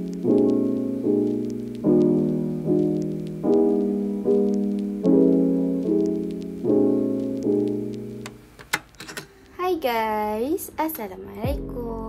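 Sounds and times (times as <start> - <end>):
piano playing chords: 0.0 - 8.9.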